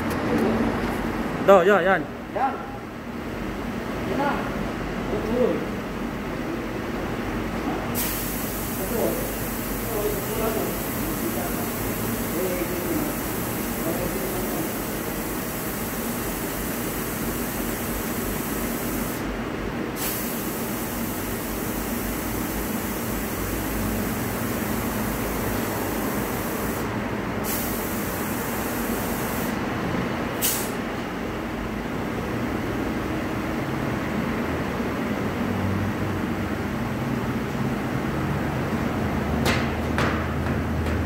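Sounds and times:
compressed air hissing: 0:08.0 - 0:19.3, 0:20.0 - 0:29.6, 0:30.4 - 0:30.8
sharp burst of air: 0:08.0 - 0:19.3, 0:19.9 - 0:29.6, 0:30.3 - 0:30.9.

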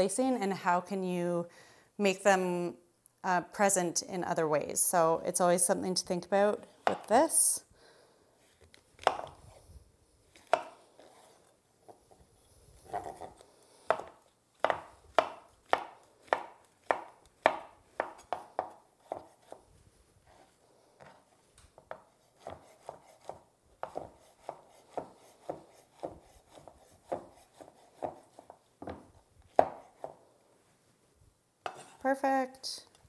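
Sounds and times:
knife dicing on wooden board: 0:09.0 - 0:09.4, 0:10.4 - 0:11.2, 0:12.9 - 0:19.6, 0:21.9 - 0:30.2.

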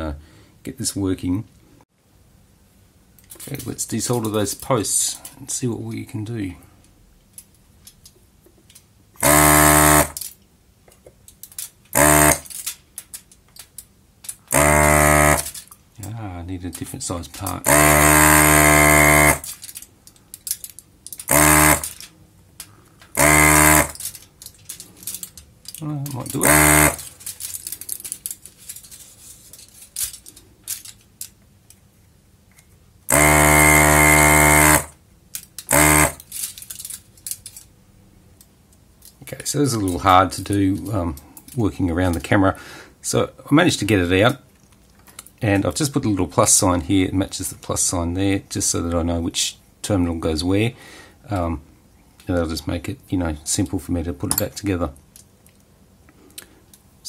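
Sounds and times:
small handling clicks: 0:06.8 - 0:37.7, 0:44.2 - 0:45.7
desoldering pump buzzing: 0:09.2 - 0:10.2, 0:11.9 - 0:12.6, 0:14.4 - 0:15.7, 0:17.4 - 0:19.6, 0:21.2 - 0:22.1, 0:23.1 - 0:24.2, 0:26.1 - 0:27.2, 0:33.1 - 0:35.0, 0:35.6 - 0:36.3.

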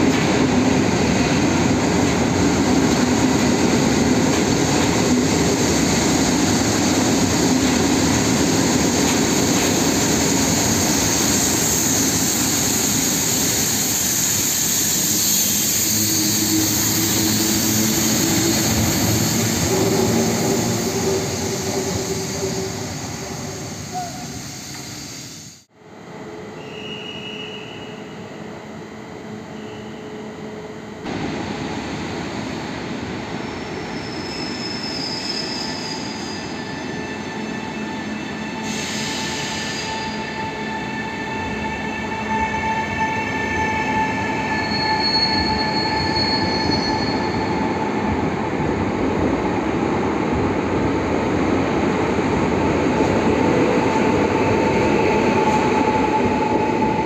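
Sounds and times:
air hiss: 0:10.4 - 0:19.6, 0:38.6 - 0:39.9.

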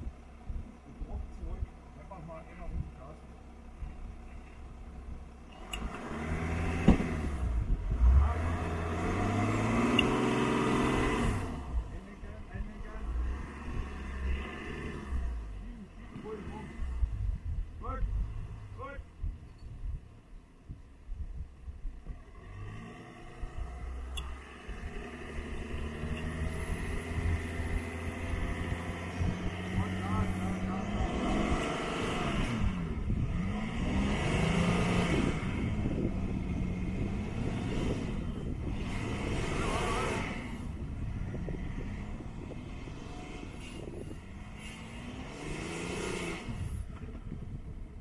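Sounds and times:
engine revving under load: 0:05.0 - 0:20.0, 0:21.7 - 0:48.0.

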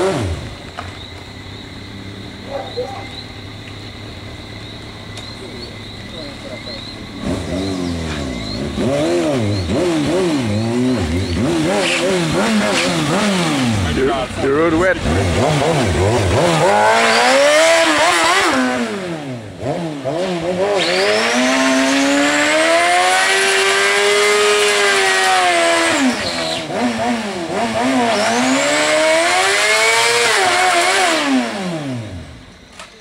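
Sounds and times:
motorcycle engine revving hard: 0:00.0 - 0:00.6, 0:07.0 - 0:32.5
tire spinning on asphalt: 0:00.0 - 0:02.4, 0:03.2 - 0:32.8.

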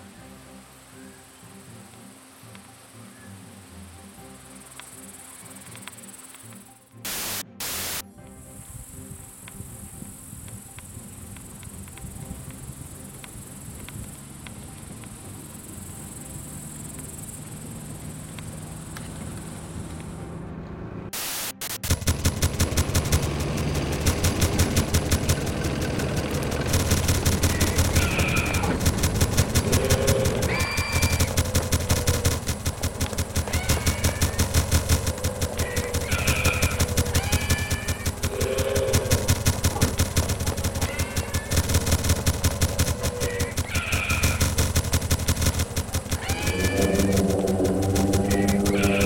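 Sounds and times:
high thin hiss: 0:04.2 - 0:14.3, 0:21.2 - 0:21.8
machine-gun fire: 0:21.6 - 0:49.0
low rumble: 0:44.8 - 0:49.0.

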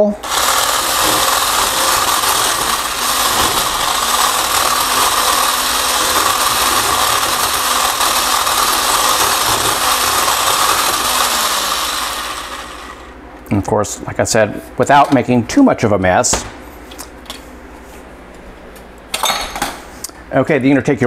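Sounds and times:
immersion blender running: 0:00.0 - 0:13.3.

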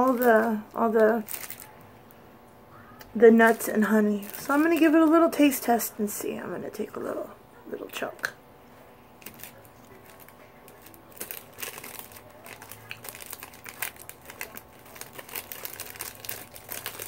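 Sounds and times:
plastic wrapper crinkling: 0:00.0 - 0:02.2, 0:03.0 - 0:05.8, 0:09.2 - 0:17.0.

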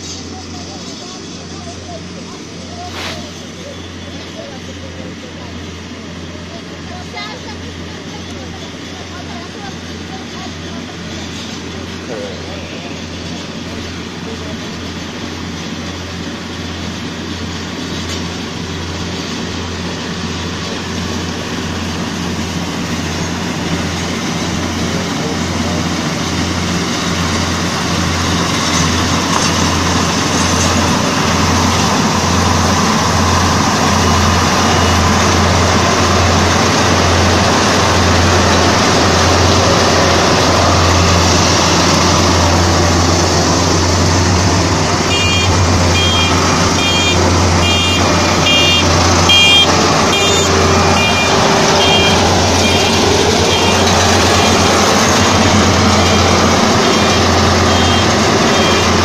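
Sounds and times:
combine harvester engine drone: 0:00.0 - 0:59.0
threshing machinery rushing: 0:17.3 - 0:59.0
reversing alarm beeping: 0:33.8 - 0:35.7, 0:45.0 - 0:59.0.

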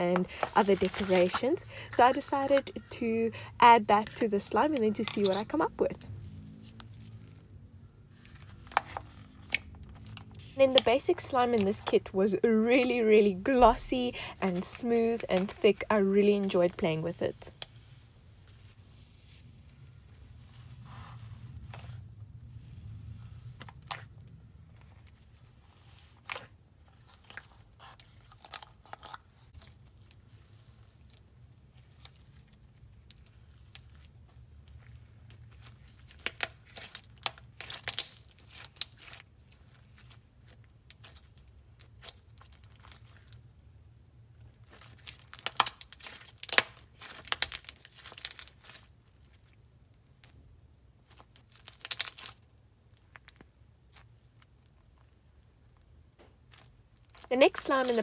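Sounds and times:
dense slime crackling: 0:24.8 - 0:43.4, 0:44.6 - 0:58.0.

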